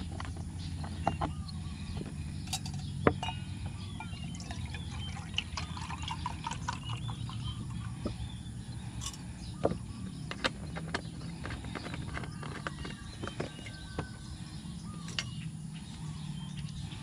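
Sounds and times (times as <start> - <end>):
steady low hum: 0.0 - 17.0
milk glugging and splashing: 4.0 - 8.0.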